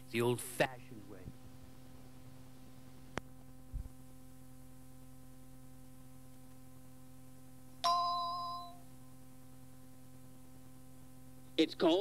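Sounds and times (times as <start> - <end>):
cassette playback hum and hiss: 0.0 - 12.0
bell-like chime ringing: 7.8 - 8.8.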